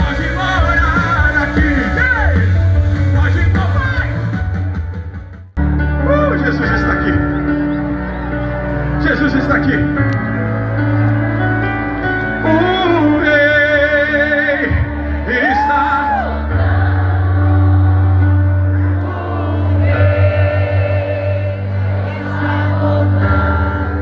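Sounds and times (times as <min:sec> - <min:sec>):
amplified singing: 0:00.0 - 0:02.4, 0:12.4 - 0:24.0
gospel band playing: 0:00.0 - 0:24.0.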